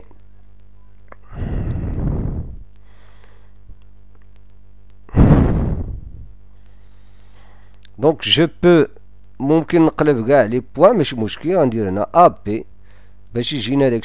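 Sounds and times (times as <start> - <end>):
man breathing out heavily: 1.2 - 3.6, 5.1 - 7.7.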